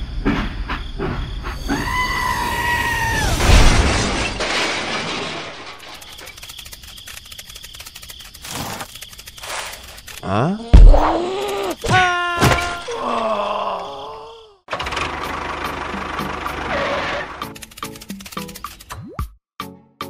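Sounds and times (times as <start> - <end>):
loud crash with shattering: 3.2 - 6.1
faint crackling rattle: 5.0 - 10.2.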